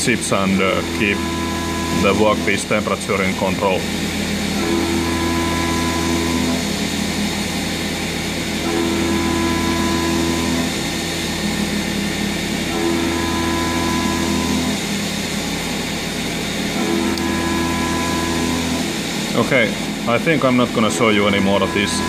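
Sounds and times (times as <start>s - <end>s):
milling machine cutting: 0.0s - 22.0s
ringing pitched cutter notes: 0.2s - 3.8s, 16.8s - 22.0s.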